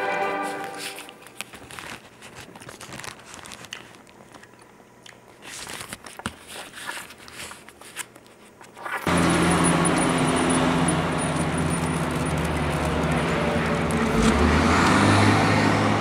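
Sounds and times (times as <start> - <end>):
paperback book rustling: 0.4 - 4.5, 5.3 - 9.1.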